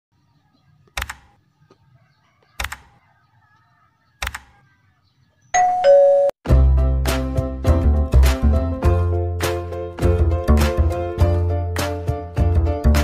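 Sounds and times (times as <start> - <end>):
mouse double clicks: 0.9 - 1.3, 4.2 - 4.5.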